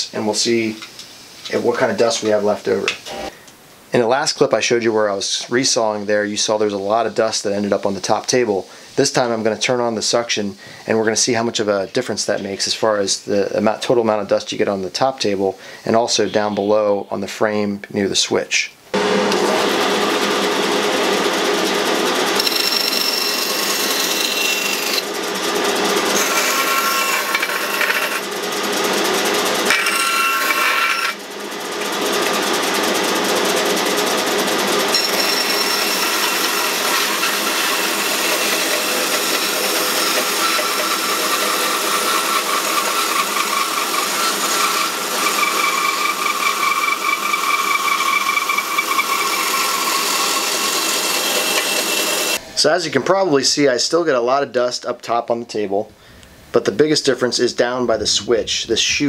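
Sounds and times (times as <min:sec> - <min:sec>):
steady motor whine: 0:19.0 - 0:29.7, 0:31.2 - 0:45.7
band saw cutting wood: 0:19.0 - 0:52.4
dust collector suction: 0:19.0 - 0:52.7.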